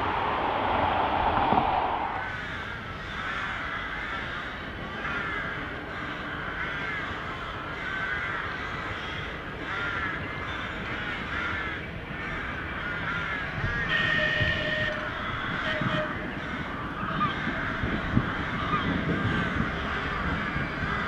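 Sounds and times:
steady background rush: 0.0 - 13.9
birds cawing: 0.0 - 21.0.

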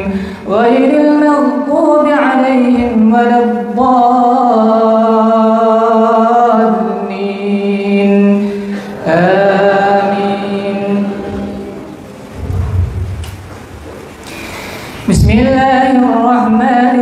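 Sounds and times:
man chanting: 15.1 - 17.0.

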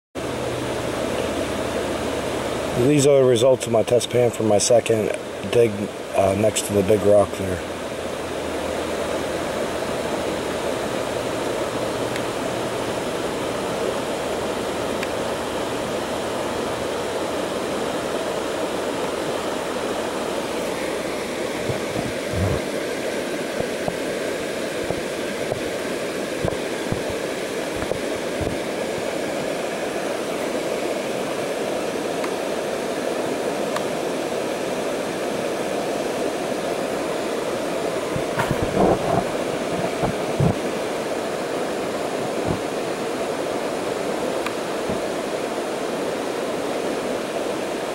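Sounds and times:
flowing water rushing: 0.2 - 47.9
soft low thumps: 21.6 - 22.6.

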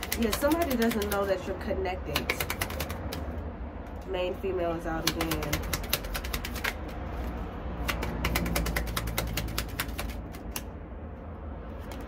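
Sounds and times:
cards being shuffled: 0.0 - 1.4, 2.1 - 4.0, 5.0 - 10.7, 11.8 - 12.0.

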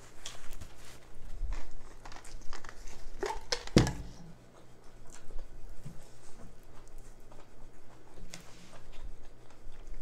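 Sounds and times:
plastic tumbler set down on table: 3.6 - 4.1.

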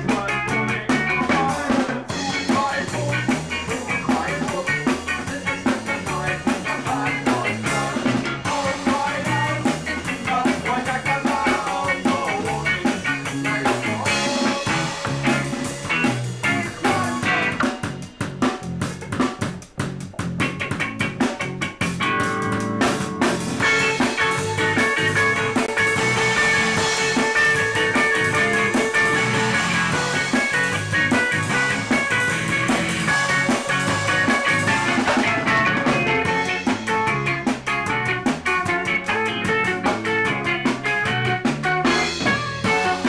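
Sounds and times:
ska-punk band playing: 0.0 - 43.0
drum hits: 13.0 - 38.6
held electric guitar notes: 13.2 - 43.0.

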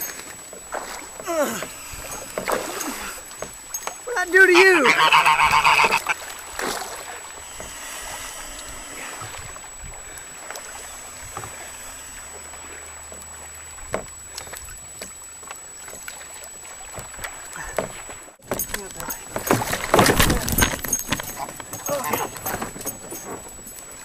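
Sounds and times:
small splashes: 0.0 - 24.0
water lapping against kayak: 0.0 - 24.0
loud cry: 4.1 - 6.1.

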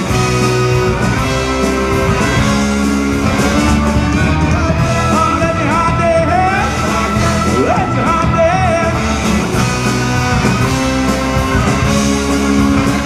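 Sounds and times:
rock band playing live: 0.0 - 13.0
man singing lead vocal: 4.2 - 9.8.

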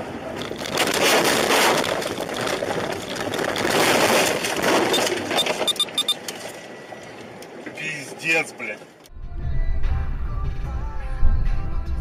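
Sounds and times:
snow and branches scraping car: 0.5 - 5.4.

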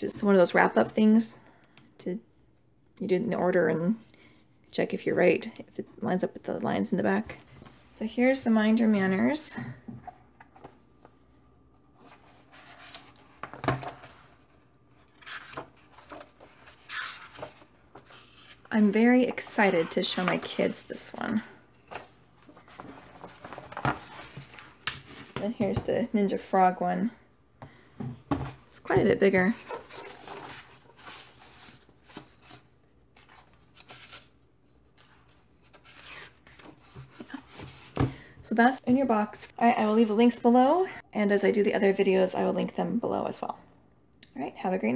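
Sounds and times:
book pages turning: 12.0 - 25.6, 29.5 - 38.1.

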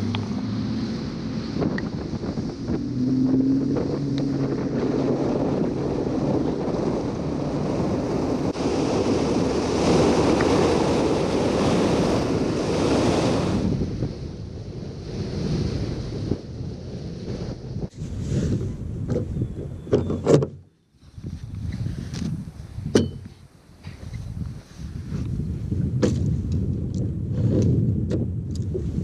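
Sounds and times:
water rushing past hull: 0.0 - 17.8
outboard motor hum: 0.0 - 20.7
wind buffeting microphone: 0.0 - 29.0.

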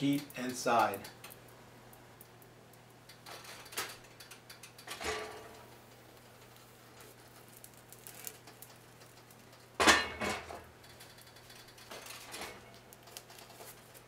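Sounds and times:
iron lid clanking on skillet: 9.8 - 10.6.

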